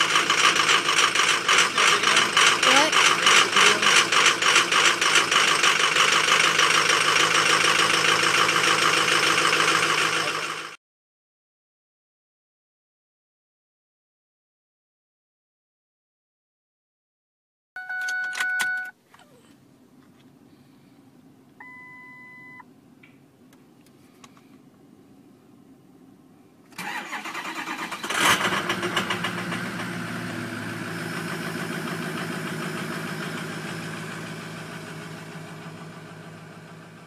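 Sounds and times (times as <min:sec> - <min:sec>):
diesel engine idling: 0:00.0 - 0:10.8, 0:26.8 - 0:37.0
two-tone dash chime: 0:17.8 - 0:18.9.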